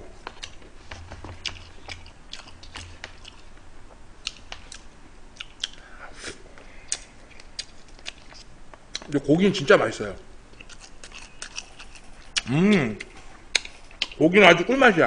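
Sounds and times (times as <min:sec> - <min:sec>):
chewing food: 0:00.2 - 0:05.9, 0:06.6 - 0:09.2, 0:10.5 - 0:14.2
wet mouth smacks: 0:05.4 - 0:05.8.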